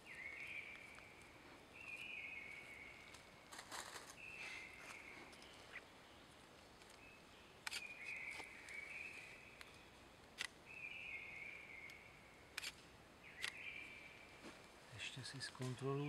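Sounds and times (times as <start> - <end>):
sharp clicks: 7.6 - 8.4, 9.6 - 10.6, 11.9 - 12.8, 13.4 - 13.6.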